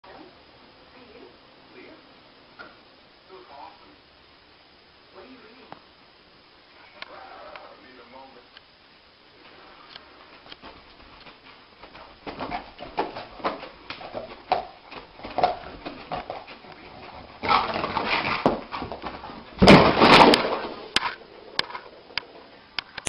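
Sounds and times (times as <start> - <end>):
dog scuffling and scrambling: 10.4 - 21.2.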